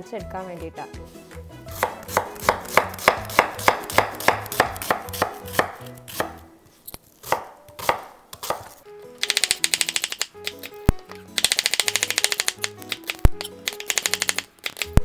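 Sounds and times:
knife chopping on wooden board: 1.7s - 6.4s, 7.2s - 8.8s.

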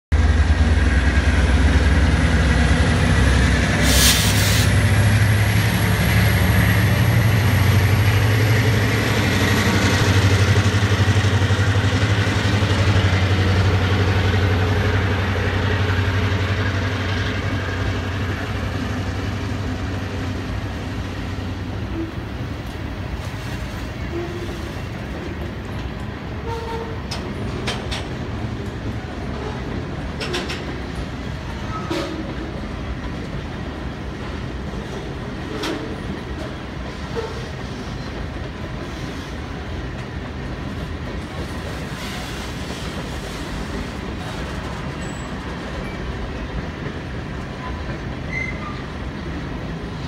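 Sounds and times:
boxcars rolling by: 0.1s - 50.0s
diesel locomotive engine drone: 0.1s - 50.0s
brief hiss: 3.8s - 4.7s.

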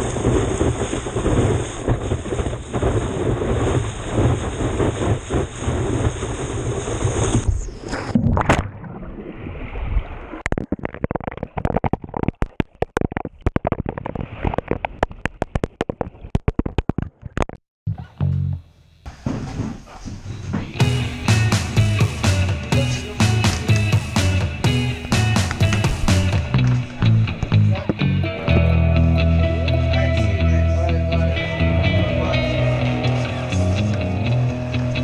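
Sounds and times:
wind and churning water: 0.0s - 12.2s
heavy low rumble: 20.6s - 35.0s.

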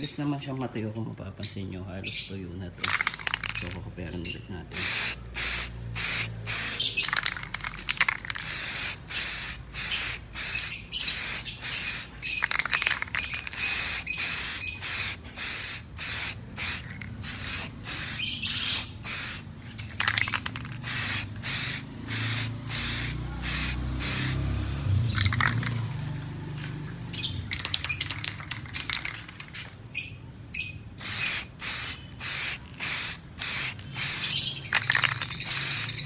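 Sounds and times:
aerosol can spraying: 2.8s - 3.8s, 4.7s - 24.5s, 27.5s - 29.7s, 31.0s - 36.0s.

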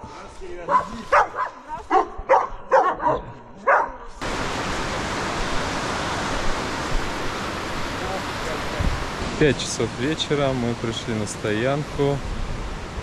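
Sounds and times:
dog barking: 0.7s - 4.1s
river rushing: 4.2s - 13.0s.

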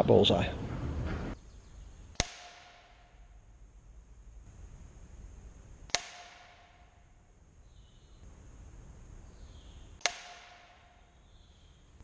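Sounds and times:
air rifle pellet hitting target: 2.1s - 3.5s, 5.8s - 7.3s, 10.0s - 11.4s.

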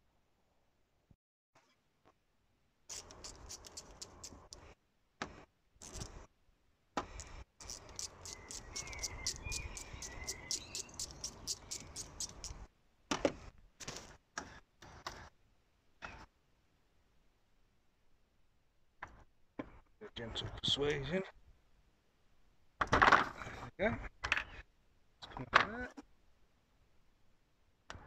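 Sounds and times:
ratcheting screwdriver clicking: 2.9s - 4.6s, 5.8s - 6.1s, 7.2s - 12.6s.

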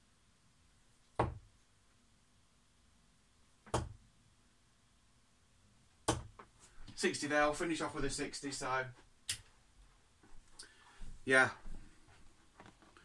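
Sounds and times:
darts thudding into dartboard: 6.1s - 6.4s.

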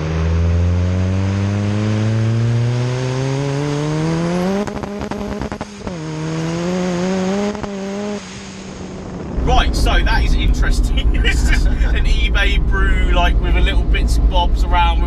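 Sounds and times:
car engine revving: 0.0s - 15.0s
exhaust pops and crackles: 4.4s - 15.0s.

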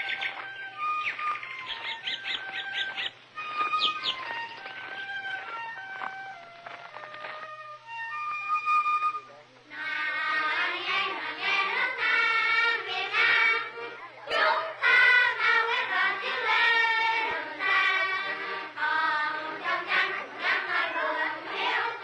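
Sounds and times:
children singing: 9.7s - 22.0s.

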